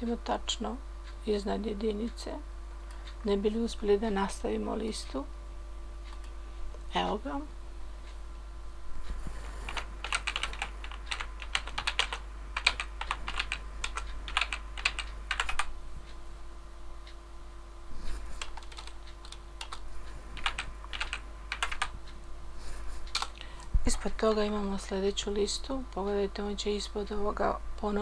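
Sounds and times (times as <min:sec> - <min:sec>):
typing on a computer keyboard: 0:09.7 - 0:15.7, 0:18.4 - 0:19.8, 0:20.4 - 0:21.9, 0:23.1 - 0:23.4.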